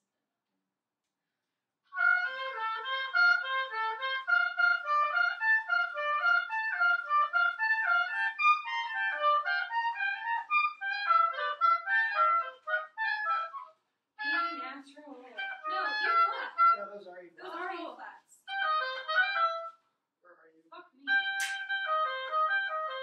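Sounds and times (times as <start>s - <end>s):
oboes playing short notes: 2.0s - 16.9s, 21.1s - 23.0s.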